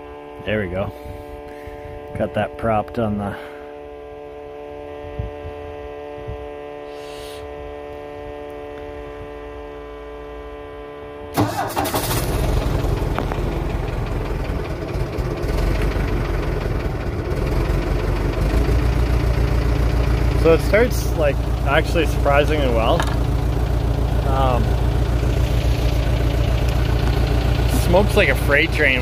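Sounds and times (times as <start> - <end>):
steady electric hum: 0.0 - 11.4, 12.0 - 29.0
diesel engine cranking and running: 11.3 - 29.0.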